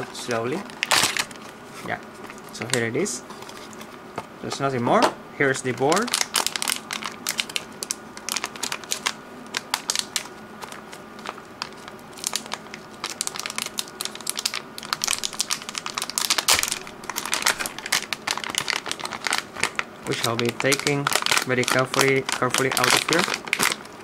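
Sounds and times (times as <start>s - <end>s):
plastic bag crinkling: 0.0s - 1.4s, 5.7s - 24.0s.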